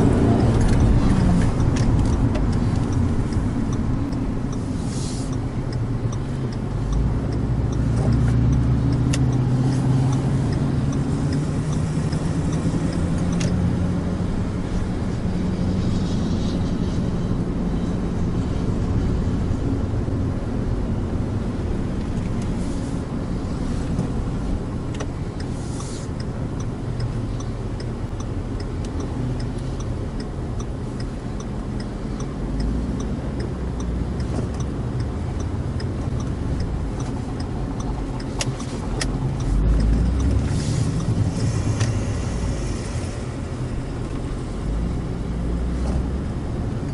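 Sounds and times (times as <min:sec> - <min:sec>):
car engine accelerating: 0:00.0 - 0:46.9
tyre and road noise: 0:00.0 - 0:46.9
faint even ticking: 0:00.4 - 0:13.8, 0:23.7 - 0:43.1.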